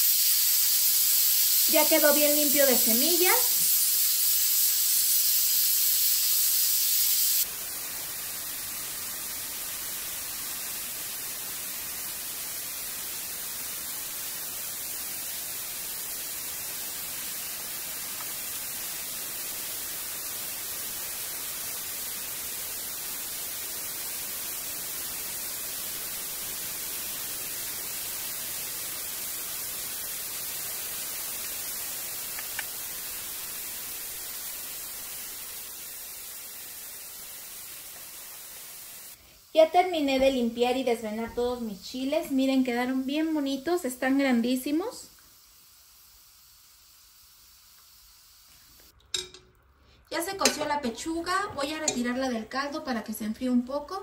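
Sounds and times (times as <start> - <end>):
high-pitched hiss: 0.0 - 49.4, 51.6 - 53.0
steady static hiss: 0.0 - 53.0.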